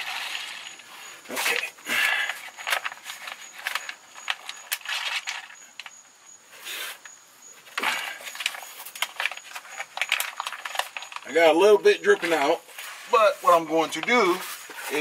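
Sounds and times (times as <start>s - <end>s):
plastic pouch crinkling: 8.3s - 15.0s.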